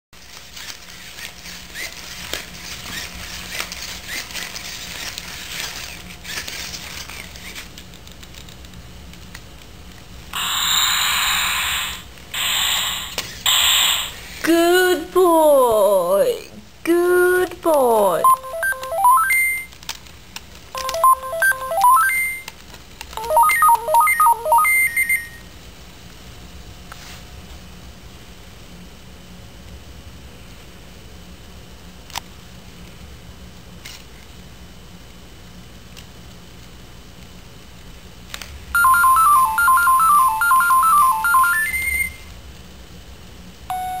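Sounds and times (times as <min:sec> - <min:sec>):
robot dog beeping melodies: 0:18.2 - 0:19.7, 0:20.8 - 0:22.5, 0:23.2 - 0:25.4, 0:38.8 - 0:42.2, 0:43.7 - 0:44.0.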